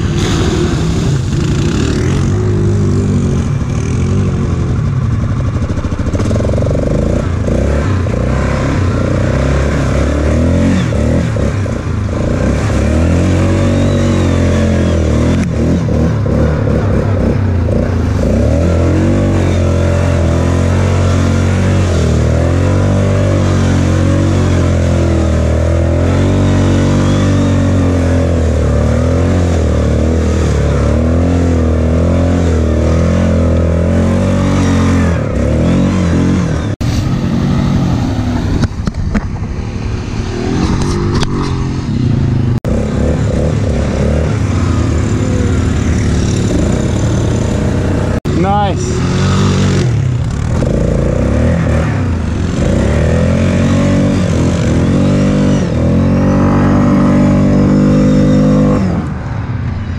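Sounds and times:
atv engine revving: 0.0s - 59.9s
rough weak engine rumble: 32.8s - 59.9s.

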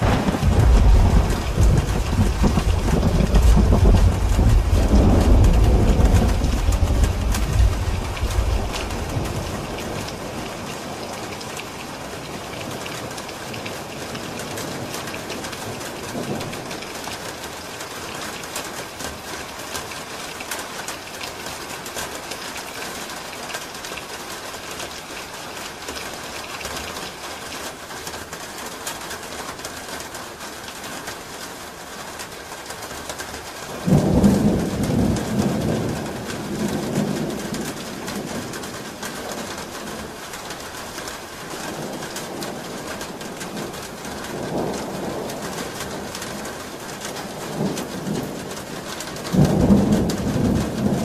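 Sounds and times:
low rumble of thunder: 0.0s - 17.6s, 33.7s - 51.0s
rain falling on a roof: 0.0s - 51.0s.

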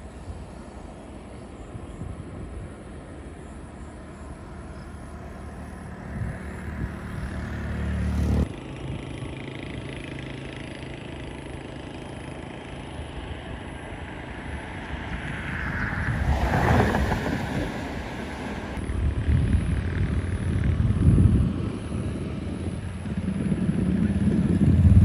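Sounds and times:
jet engine rush: 13.7s - 25.0s
heavy low rumble: 18.7s - 25.0s.

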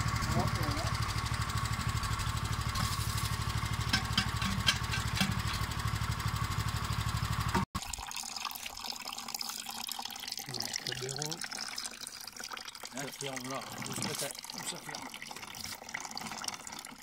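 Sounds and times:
liquid trickling: 7.7s - 17.0s.

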